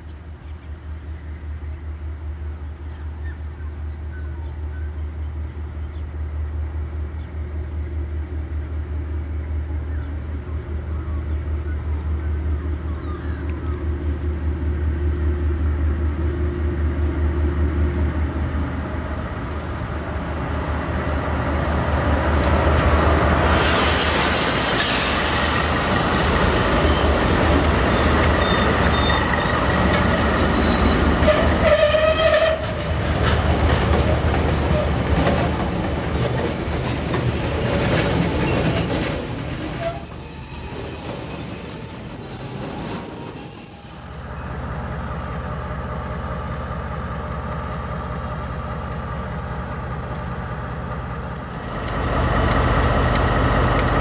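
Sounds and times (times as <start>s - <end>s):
locomotive drone: 0.0s - 54.0s
wheel and rail noise: 0.0s - 54.0s
high wheel squeal: 27.8s - 29.7s, 30.3s - 44.7s.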